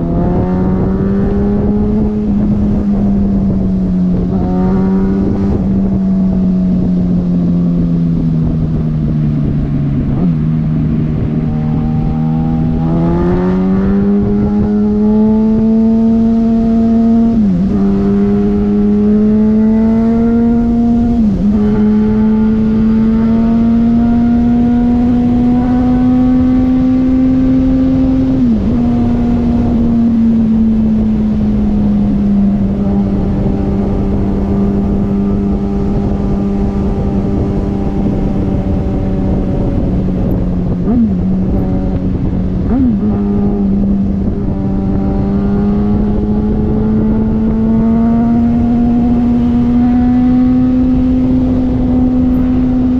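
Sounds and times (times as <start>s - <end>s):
motorcycle engine at speed: 0.0s - 52.9s.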